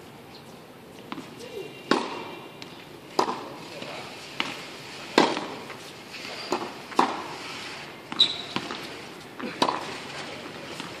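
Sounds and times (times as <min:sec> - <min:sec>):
tennis balls bouncing on hard court: 0:01.0 - 0:05.7, 0:06.4 - 0:07.4, 0:08.1 - 0:10.0, 0:10.6 - 0:11.0
tennis balls struck by rackets: 0:01.0 - 0:07.4, 0:08.1 - 0:11.0.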